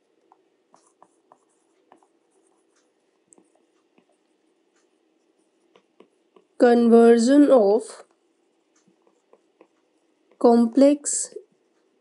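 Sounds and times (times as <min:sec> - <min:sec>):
stylus tapping on tablet: 0:00.0 - 0:06.6, 0:08.0 - 0:10.5.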